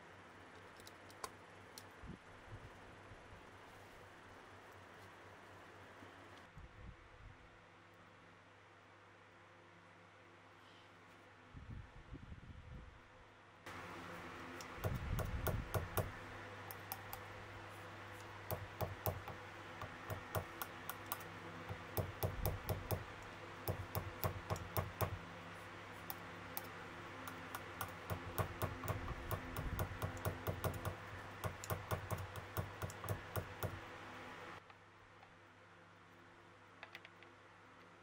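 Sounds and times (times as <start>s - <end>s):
amplifier mains hum: 13.7s - 38.0s.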